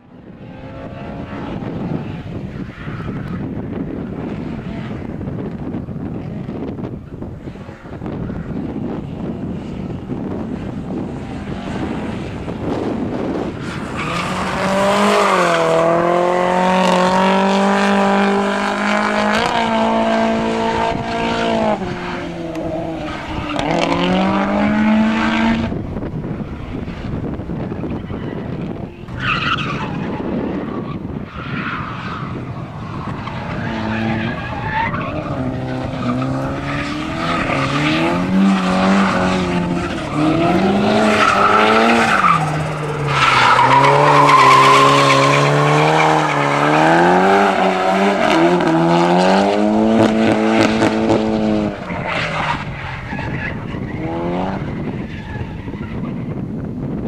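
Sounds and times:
car engine revving: 7.4s - 30.8s, 31.6s - 55.7s.

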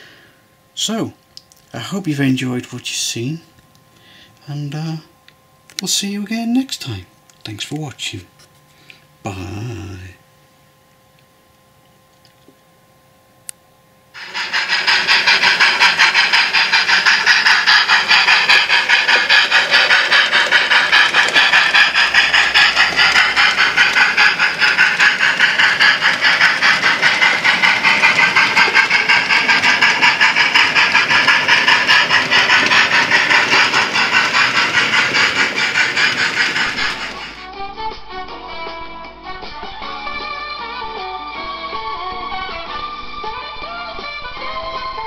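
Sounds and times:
steam hissing: 14.2s - 37.5s
steam locomotive chuffing: 14.2s - 37.5s, 39.4s - 45.0s.

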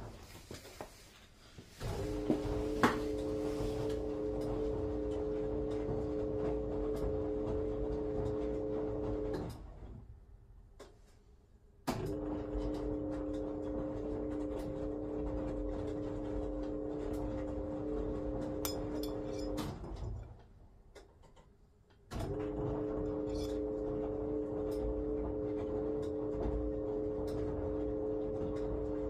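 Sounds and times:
washing machine drum motor humming: 1.8s - 10.1s, 11.9s - 20.4s, 22.1s - 29.0s
washing machine restart click: 1.9s - 9.7s, 11.9s - 20.0s, 22.1s - 29.0s.

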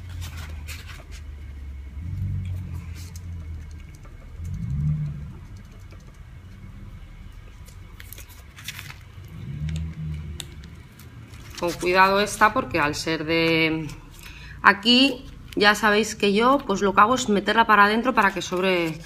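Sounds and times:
low rumbling hum: 0.0s - 19.0s.

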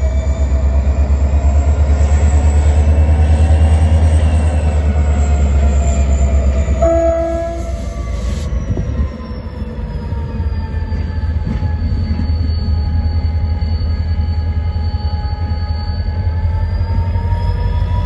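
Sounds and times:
diesel locomotive engine throbbing: 0.0s - 18.0s
locomotive horn blast: 6.8s - 8.0s.

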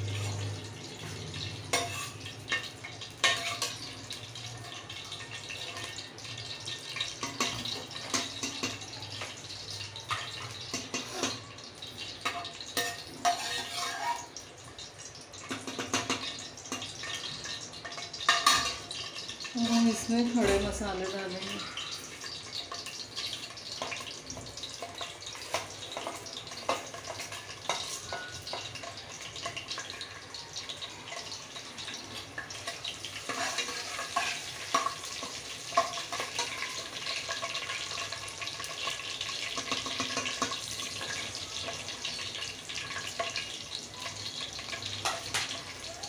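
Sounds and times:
spoon scraping metal pot: 0.0s - 3.9s, 10.0s - 11.5s, 12.2s - 14.4s, 15.5s - 30.0s, 31.1s - 43.7s
spices sizzling in hot oil: 0.0s - 46.0s.

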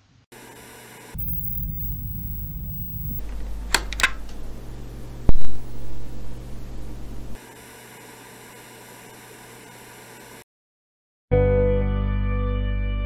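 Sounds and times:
static crackles: 1.2s - 3.6s, 4.3s - 7.4s
low hum: 1.2s - 7.4s.

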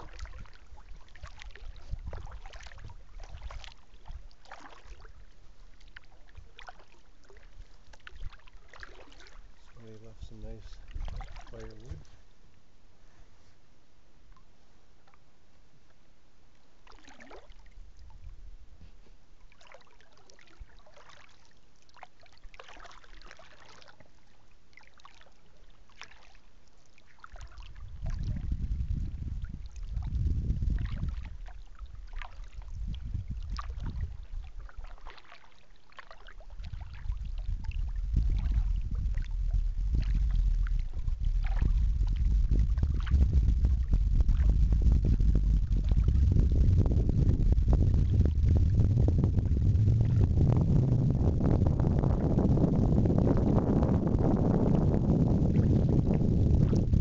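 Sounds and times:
water dripping off paddle: 0.0s - 5.1s
wind rumble on microphone: 0.0s - 12.2s, 17.7s - 19.1s, 27.3s - 35.3s, 36.4s - 57.0s.

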